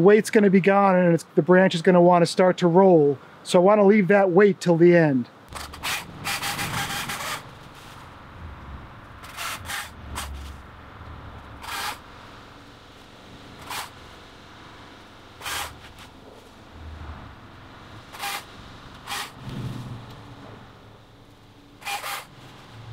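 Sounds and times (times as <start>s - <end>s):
electric chainsaw cutting branches: 5.5s - 12.2s, 13.4s - 14.2s, 15.4s - 16.9s, 18.0s - 20.2s, 21.8s - 22.5s.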